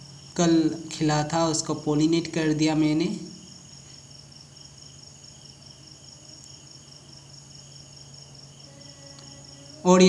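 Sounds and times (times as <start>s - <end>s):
crickets trilling: 0.0s - 10.0s
faint low hum: 0.0s - 10.0s.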